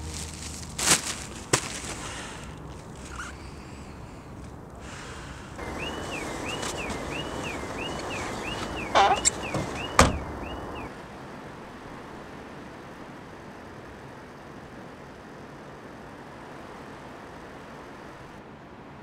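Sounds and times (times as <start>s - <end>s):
knocks from car door and seat: 5.6s - 10.7s
car warning chime beeping: 5.6s - 10.9s.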